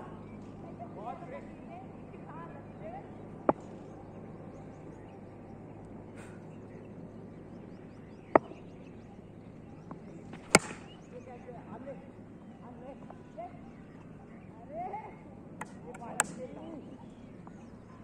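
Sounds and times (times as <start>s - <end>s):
faint bird chirps: 0.0s - 18.0s
outdoor background noise: 0.0s - 18.0s
cricket ball struck by bat: 8.3s - 8.6s, 10.3s - 11.0s.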